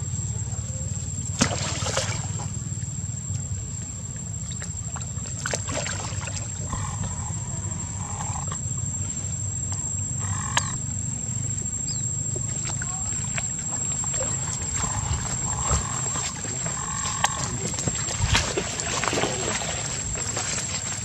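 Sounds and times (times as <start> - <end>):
steady low rumble: 0.0 - 21.0
macaque calls: 6.7 - 8.6, 10.2 - 10.8, 14.2 - 18.2.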